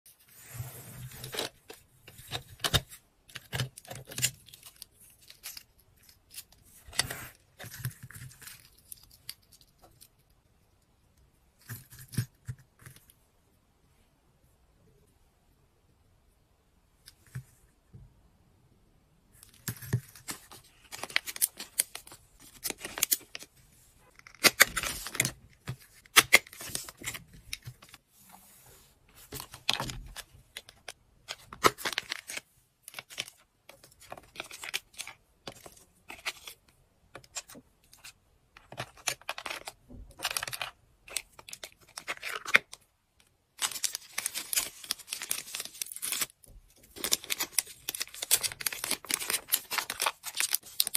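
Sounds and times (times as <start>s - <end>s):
plastic packaging crinkling: 43.6s - 50.9s.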